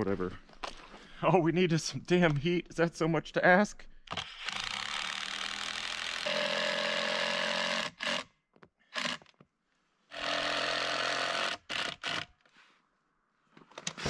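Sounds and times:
cordless drill running: 4.1 - 8.3, 8.9 - 9.3, 10.1 - 12.4.

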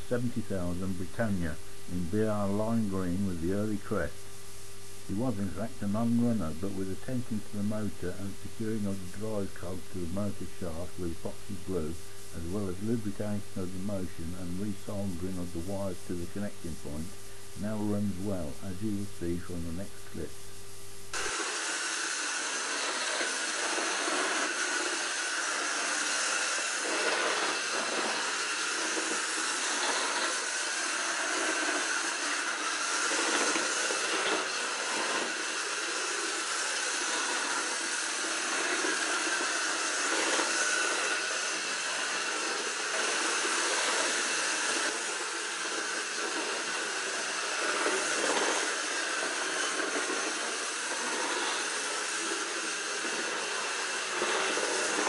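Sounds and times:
model train motor whirring: 21.1 - 55.0.

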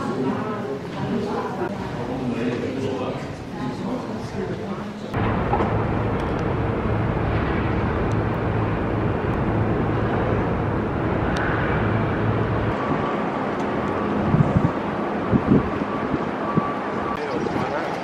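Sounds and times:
low engine-like hum: 5.2 - 17.2
city traffic rumble: 5.2 - 18.0.

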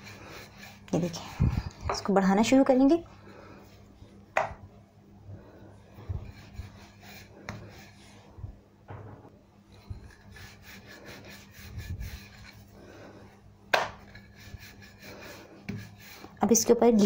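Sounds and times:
rolling pin rolling dough: 0.0 - 2.7, 5.9 - 8.4, 9.7 - 12.8, 13.7 - 17.0.

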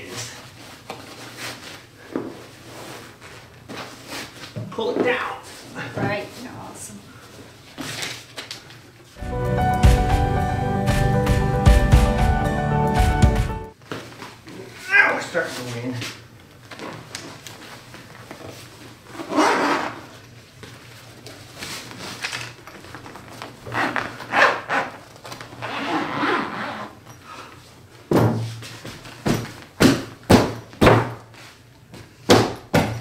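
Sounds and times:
fabric rustling and scraping: 0.3 - 4.6.

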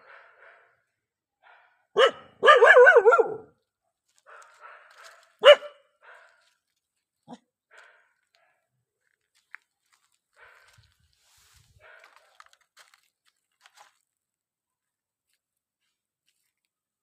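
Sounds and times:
dog barking: 0.0 - 3.6, 4.2 - 6.6, 11.8 - 12.4.

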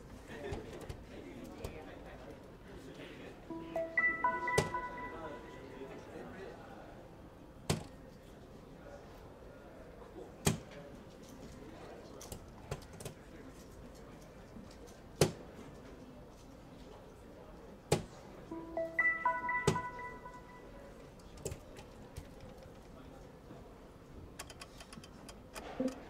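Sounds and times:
electronic beeping tones: 3.5 - 5.7, 18.5 - 20.7.

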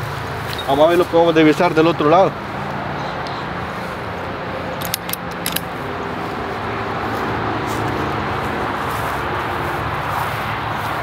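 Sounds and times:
road traffic noise: 0.0 - 11.0
sharp click: 4.8 - 5.7.

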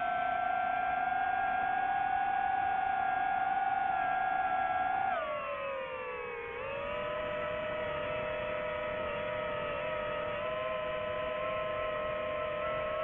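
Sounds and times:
drone propellers whining: 6.2 - 13.0.

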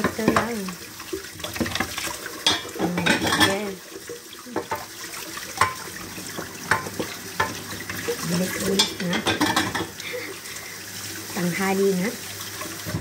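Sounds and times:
kitchen tap running: 0.0 - 13.0
dishes clinking: 2.4 - 3.7, 5.6 - 7.6, 8.6 - 10.0.

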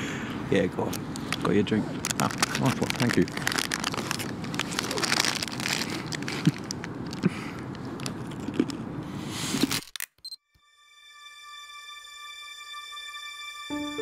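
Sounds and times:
rustling crinkling noise: 0.8 - 10.2.

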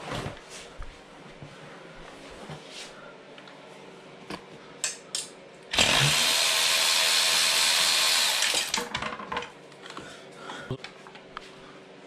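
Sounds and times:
power ratchet running: 5.7 - 8.8.

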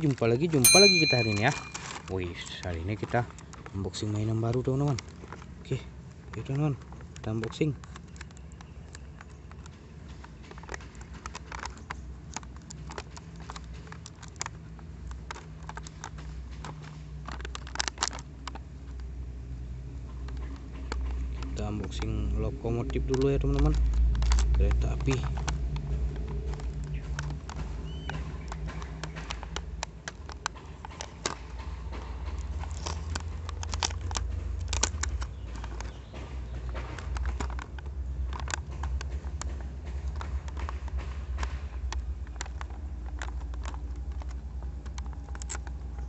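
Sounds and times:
plastic packaging crinkling: 0.0 - 19.1, 21.0 - 46.0
fingers picking at taped cardboard: 20.2 - 46.0.

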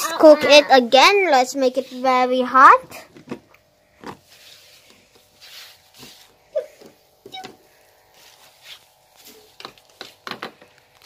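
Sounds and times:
short squeak: 7.3 - 7.6.

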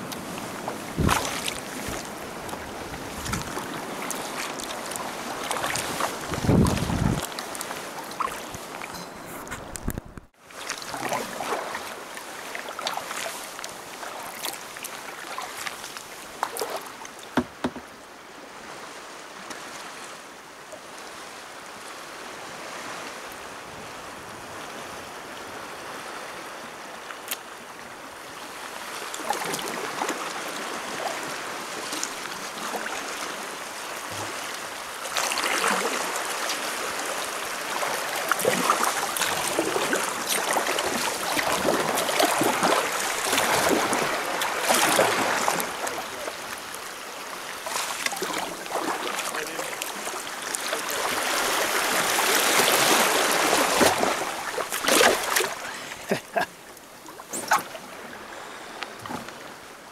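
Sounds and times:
sea water rushing through rocks: 0.0 - 9.0, 9.6 - 59.9
water splashing: 0.0 - 10.0, 10.6 - 18.0, 28.9 - 59.6.

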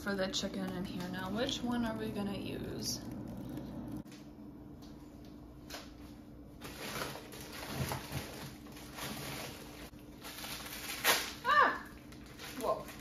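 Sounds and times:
steady low hum: 0.0 - 7.5
frozen plastic packages rustling: 5.6 - 13.0.

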